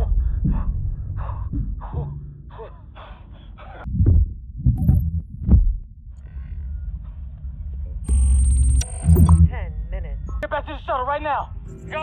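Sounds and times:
deep thuds: 3.9 - 6.0.

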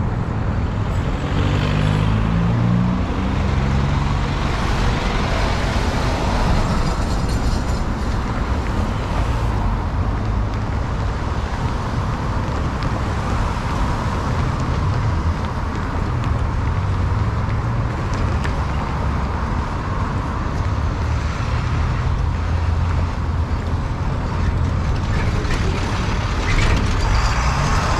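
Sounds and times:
cars passing: 0.0 - 27.9
low traffic rumble: 0.0 - 27.9
truck rolling past: 0.3 - 11.1, 22.6 - 27.9.

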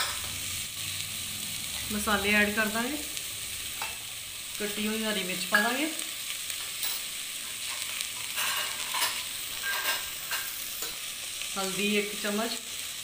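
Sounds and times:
vegetables sizzling in oil: 0.0 - 13.0
metal spoon scraping a pot: 6.8 - 11.0.

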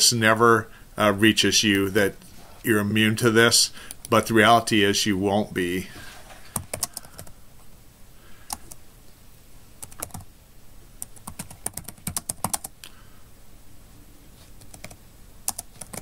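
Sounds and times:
typing on computer keyboard: 6.6 - 7.3, 9.8 - 10.3, 11.0 - 12.7, 14.6 - 16.0.

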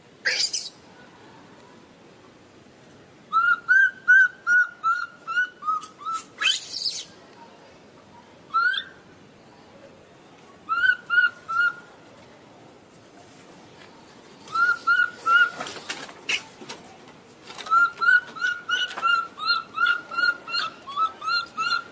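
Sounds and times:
baby monkey squeal: 0.3 - 0.7, 4.5 - 7.1
baby monkey chirping calls: 0.3 - 0.8, 3.3 - 7.1, 8.6 - 9.0, 10.7 - 11.8, 17.7 - 21.9.

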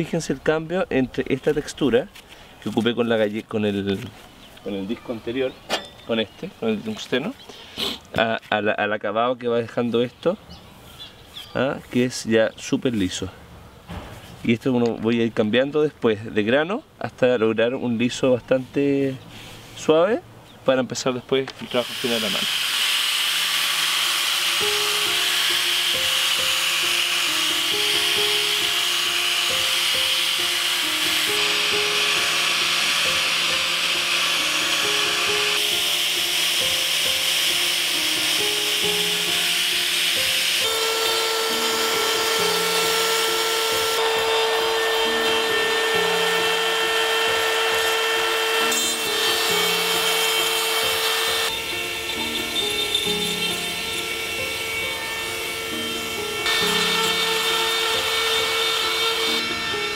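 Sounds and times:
angle grinder sanding wood: 21.6 - 59.9
slow background music: 23.3 - 59.9.

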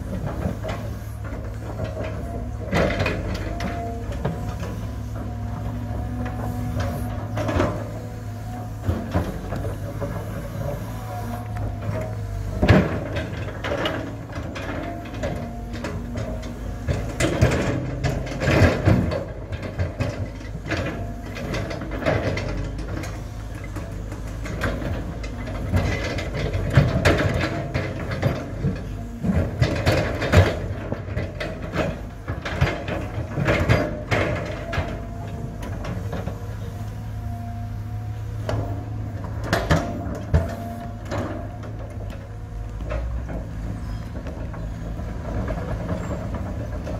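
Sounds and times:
excavator diesel engine running: 0.0 - 46.9.

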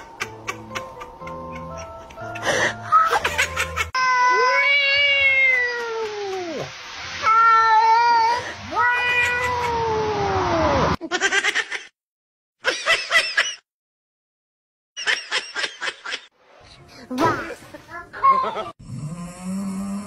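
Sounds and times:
cat meowing: 7.2 - 9.9.

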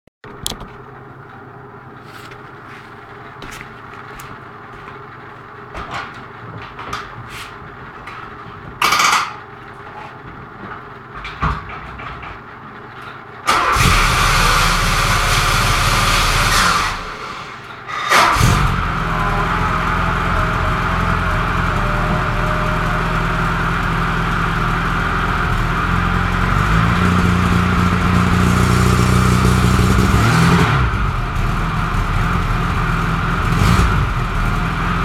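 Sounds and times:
car engine starting and running: 13.4 - 35.0
low hum: 13.6 - 34.6.

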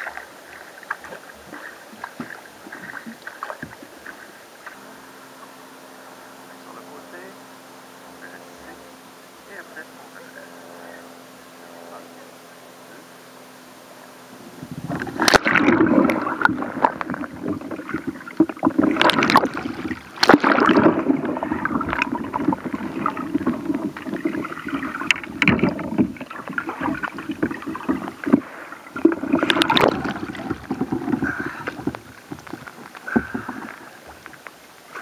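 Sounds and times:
water splashing and gurgling: 0.0 - 5.0, 14.4 - 35.0.

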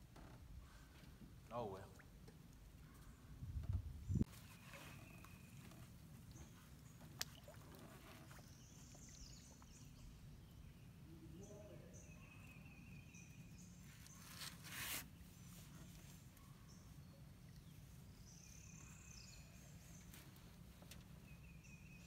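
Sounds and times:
faint river ambience: 0.0 - 22.0
faint bird chirps: 4.1 - 7.4, 8.0 - 14.6, 15.2 - 20.4.

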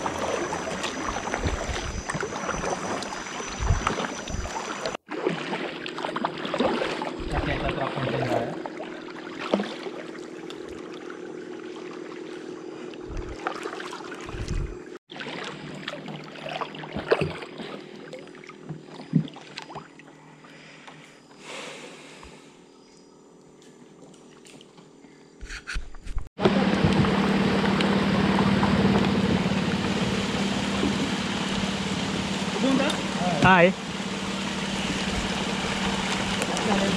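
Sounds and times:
steady low hum: 0.0 - 5.0, 7.0 - 15.0, 25.0 - 36.9
paddle splashing and dripping: 0.0 - 20.8, 26.8 - 36.9.

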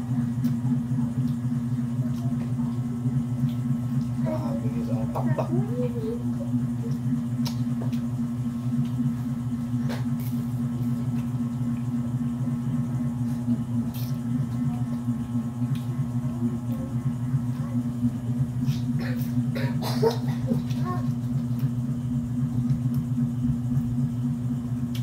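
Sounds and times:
low hum: 0.0 - 25.0
eating crab clicks and smacks: 1.2 - 2.4, 6.9 - 8.1.

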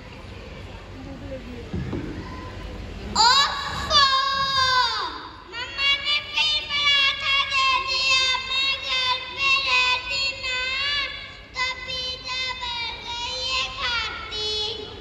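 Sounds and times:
child singing: 3.2 - 15.0.

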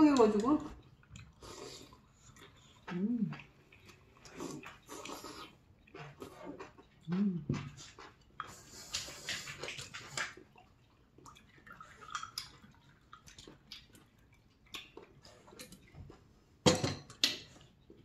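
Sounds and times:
person chewing: 0.8 - 16.4
slurping broth: 1.1 - 10.6.

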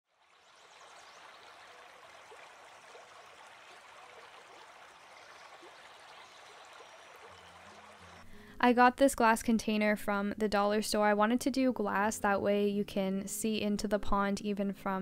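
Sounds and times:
faint running water: 0.1 - 9.9.

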